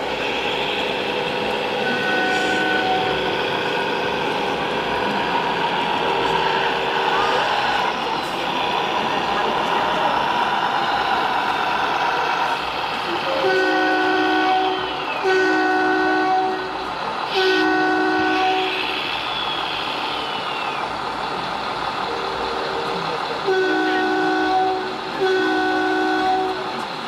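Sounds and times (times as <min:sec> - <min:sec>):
multi-note air horn blasts: 0:01.8 - 0:03.2, 0:13.4 - 0:16.8, 0:17.4 - 0:18.8, 0:23.5 - 0:26.6.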